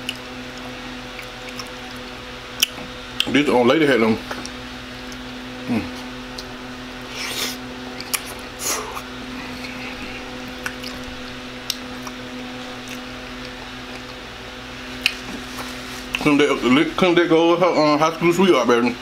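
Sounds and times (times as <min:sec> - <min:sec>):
low hum: 0:00.0 - 0:17.4
man slurping and chewing: 0:07.0 - 0:12.2.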